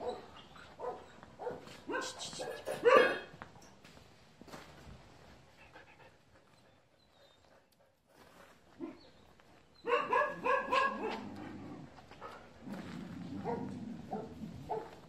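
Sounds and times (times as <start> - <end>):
dog barking: 0.0 - 3.3, 9.8 - 11.2, 13.4 - 15.0.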